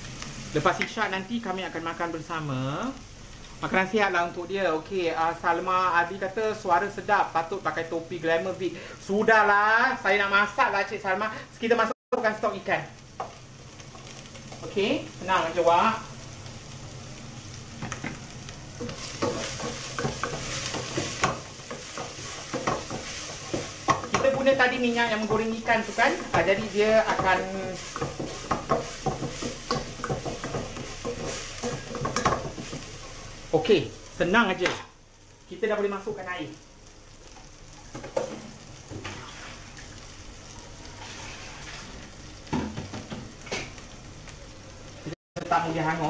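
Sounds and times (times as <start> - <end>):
paste sizzling in hot oil: 12.1 - 44.6.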